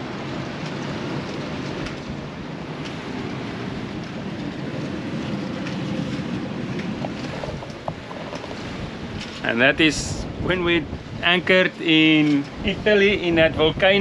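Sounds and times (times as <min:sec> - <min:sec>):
strong wind and rain: 0:00.0 - 0:14.0.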